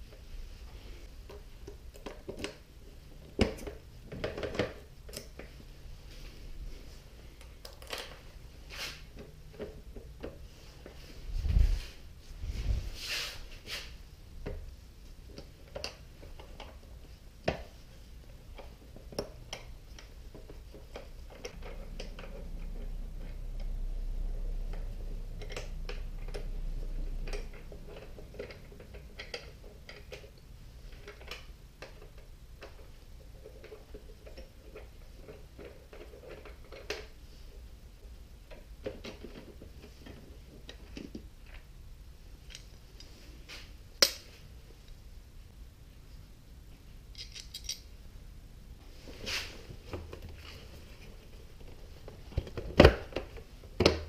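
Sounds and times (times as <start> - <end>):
low rumble: 21.6 - 27.8.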